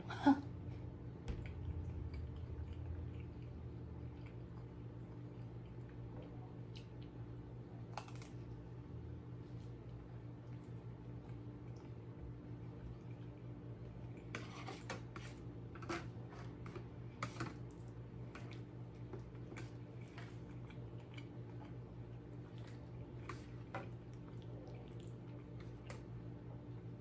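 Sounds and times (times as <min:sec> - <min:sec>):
low hum: 0:00.0 - 0:14.2
person chewing: 0:01.4 - 0:07.1, 0:17.7 - 0:26.0.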